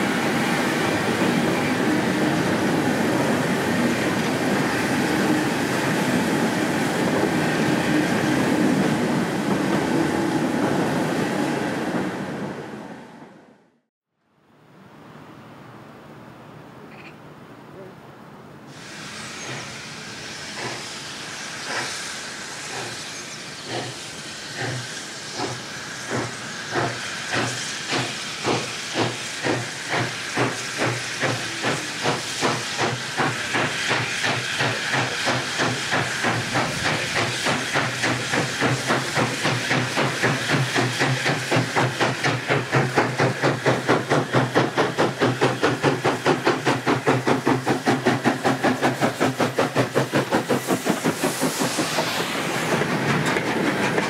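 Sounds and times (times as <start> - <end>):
steady steam hiss: 0.0 - 13.0, 17.7 - 54.0
steam locomotive exhaust beats: 18.7 - 54.0.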